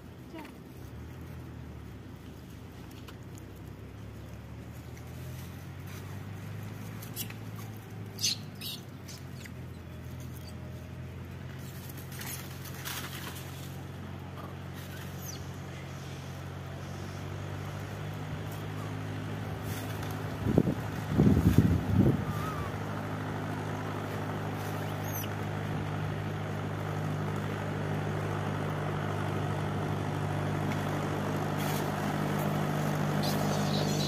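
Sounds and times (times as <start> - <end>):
engine idling: 0.0 - 34.0
short high-pitched squeaks: 33.2 - 34.0.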